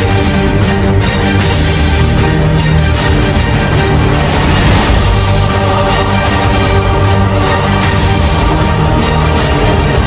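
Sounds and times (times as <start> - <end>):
loud music with low notes: 0.0 - 10.0.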